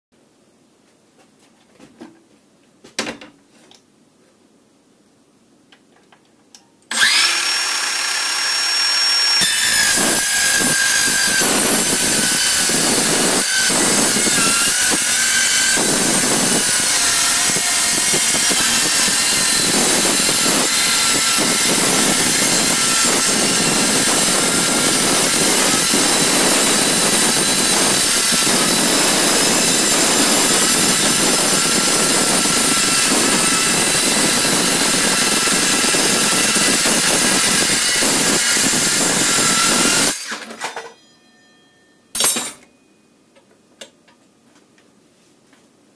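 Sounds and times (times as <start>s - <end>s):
circular saw cutting metal: 6.9s - 40.4s.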